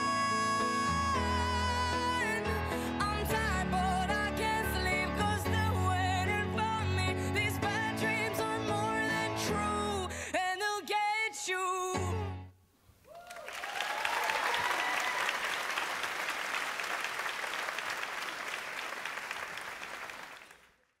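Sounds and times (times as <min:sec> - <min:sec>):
pop song singing: 0:00.0 - 0:12.5
audience cheering: 0:13.1 - 0:20.6
audience applause: 0:13.1 - 0:20.8.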